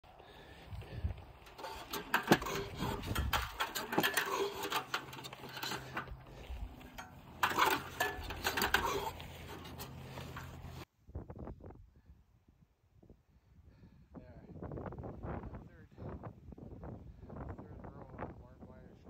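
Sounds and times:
barbed wire rattling on spool: 0:01.4 - 0:10.8.

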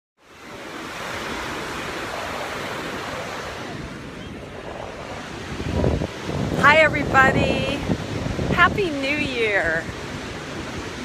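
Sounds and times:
ocean surf washing on beach: 0:00.2 - 0:11.0
wind rumbling on microphone: 0:00.2 - 0:11.0.

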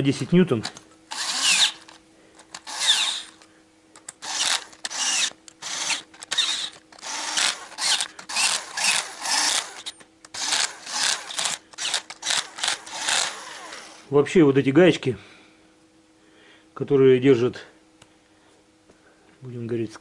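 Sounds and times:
cordless drill spinning nuts: 0:01.1 - 0:03.4, 0:04.0 - 0:14.1.

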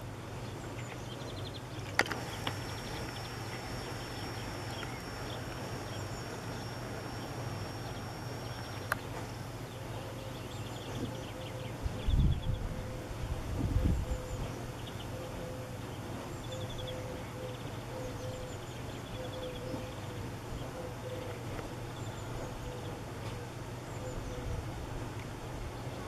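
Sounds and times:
faint high whine: 0:00.0 - 0:26.0
steady low hum: 0:00.0 - 0:26.0
faint bird chirps: 0:00.8 - 0:13.2, 0:13.8 - 0:24.6
sharp clicks: 0:01.9 - 0:09.4.

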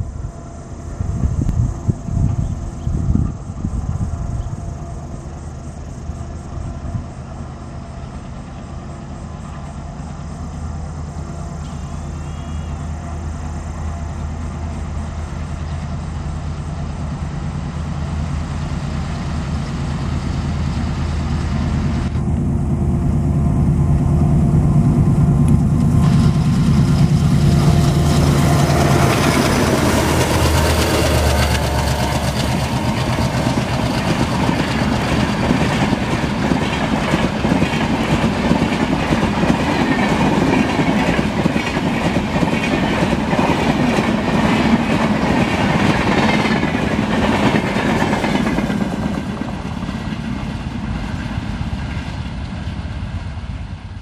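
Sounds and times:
diesel locomotive engine drone: 0:00.0 - 0:54.0
train wheels clacking on rails: 0:23.1 - 0:54.0.

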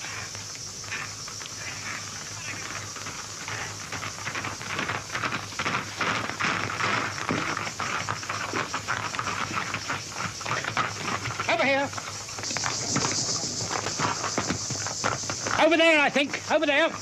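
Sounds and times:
rapid rustling and scuffling: 0:00.0 - 0:17.0
film print hiss: 0:11.4 - 0:17.0.

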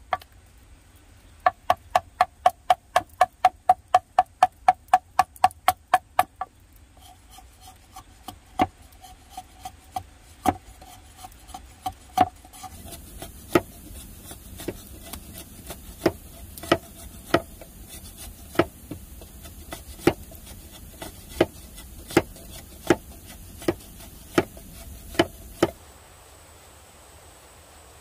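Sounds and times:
machete shaving bamboo: 0:07.0 - 0:25.8.

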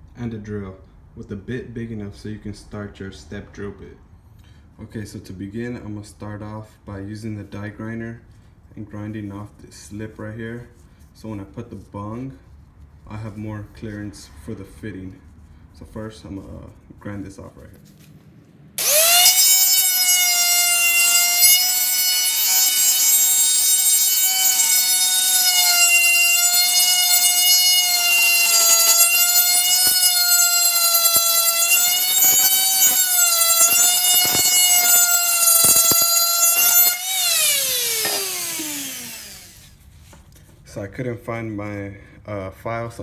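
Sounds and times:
die grinder whining: 0:18.8 - 0:39.8.

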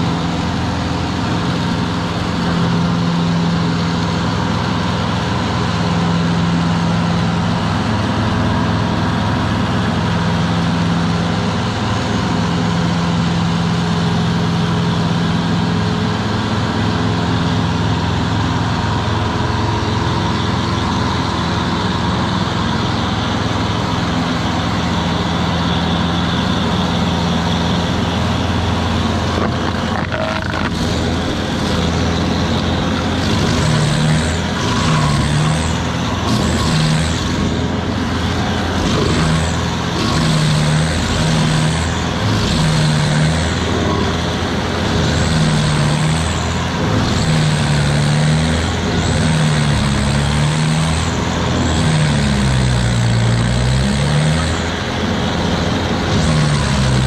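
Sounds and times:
stump grinder engine running: 0:00.0 - 0:57.0
cutter wheel grinding wood: 0:28.1 - 0:55.0, 0:55.8 - 0:57.0.

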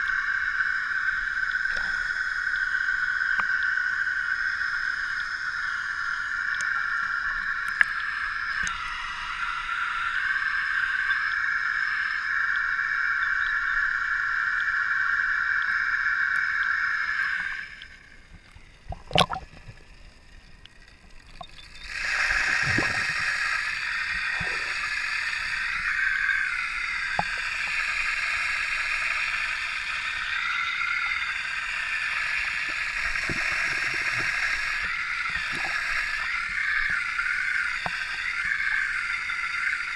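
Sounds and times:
low underwater gurgling: 0:17.3 - 0:19.9, 0:21.4 - 0:27.8, 0:32.3 - 0:38.6.

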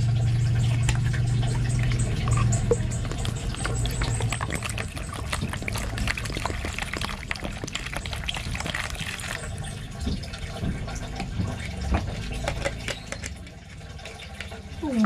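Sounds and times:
water pouring and splashing: 0:00.0 - 0:15.0.

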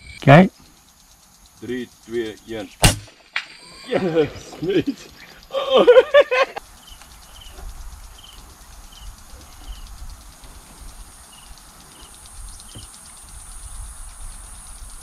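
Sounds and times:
insects chirping: 0:00.0 - 0:15.0
steady high buzz: 0:00.0 - 0:15.0
fast high ticking: 0:00.2 - 0:15.0
low wind rumble: 0:04.0 - 0:15.0.

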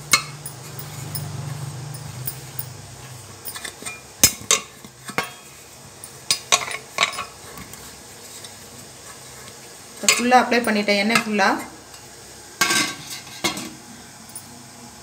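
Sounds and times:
metal plates clinking: 0:00.0 - 0:02.8, 0:03.4 - 0:07.4.

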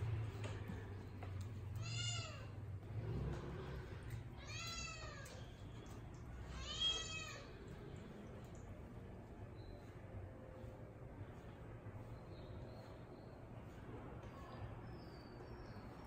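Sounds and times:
cat meowing: 0:01.8 - 0:02.6, 0:04.3 - 0:05.4, 0:06.5 - 0:07.6.

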